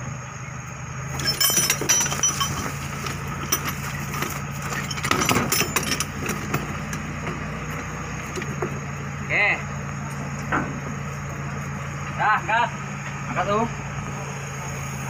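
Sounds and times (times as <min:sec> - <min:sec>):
engine idling hum: 0:00.0 - 0:15.0
wrench clinking on metal: 0:01.2 - 0:04.0, 0:04.7 - 0:07.1.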